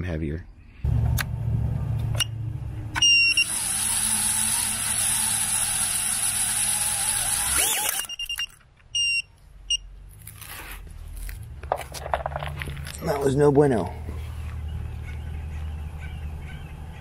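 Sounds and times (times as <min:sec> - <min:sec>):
drone motors whining: 0:00.9 - 0:08.6
short high beeps: 0:03.0 - 0:03.5, 0:07.9 - 0:09.9.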